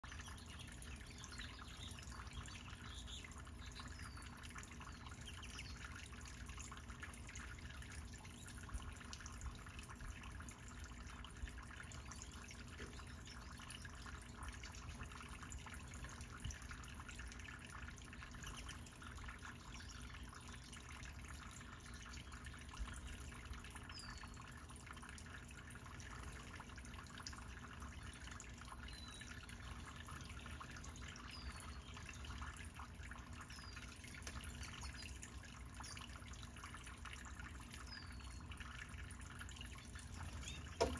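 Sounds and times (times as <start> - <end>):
high bird chirp: 40.2 - 40.9.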